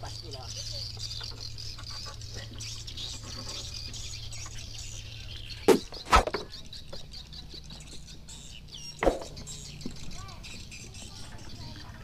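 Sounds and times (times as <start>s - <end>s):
birds chirping: 0.0s - 12.0s
boat engine humming: 0.0s - 12.0s
sharp knocks: 9.0s - 9.4s.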